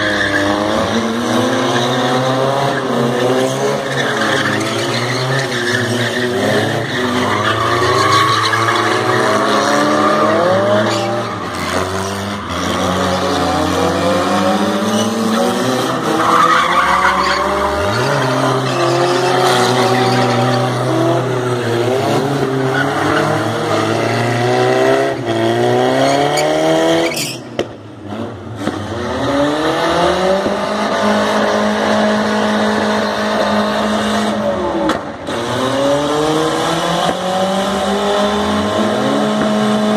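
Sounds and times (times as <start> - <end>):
tyres squealing on concrete: 0.0 - 13.9, 14.5 - 24.8, 26.0 - 27.5.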